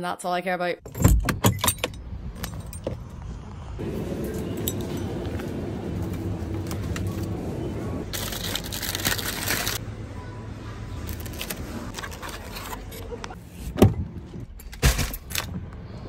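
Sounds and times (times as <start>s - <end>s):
refrigerated shelving hum: 3.5s - 16.0s.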